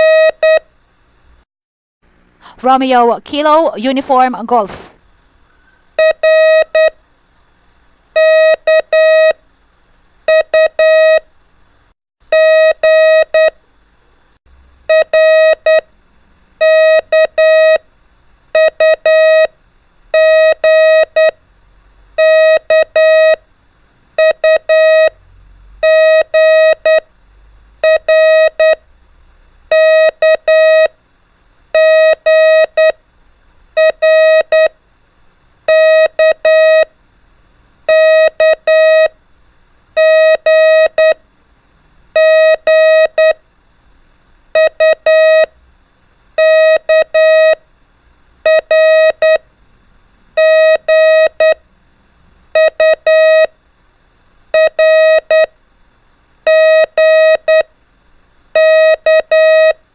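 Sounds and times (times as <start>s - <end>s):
morse code beeps: 0.0s - 0.6s, 8.2s - 9.4s, 20.2s - 21.4s, 22.2s - 23.4s, 24.2s - 25.1s, 25.8s - 27.0s, 27.8s - 28.8s, 29.7s - 30.9s, 31.8s - 33.0s, 33.8s - 34.7s, 35.7s - 36.9s, 37.9s - 39.1s, 40.0s - 41.2s, 42.2s - 43.4s, 44.6s - 45.5s, 46.4s - 47.6s, 48.5s - 49.4s, 50.4s - 51.6s, 52.6s - 53.5s, 54.6s - 55.5s, 56.5s - 57.7s, 58.6s - 59.8s.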